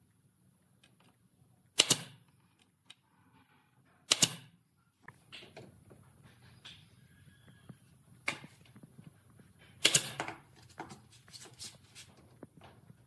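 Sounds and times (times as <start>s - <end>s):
nail gun firing: 1.8s - 2.2s, 4.1s - 4.5s, 9.8s - 10.4s.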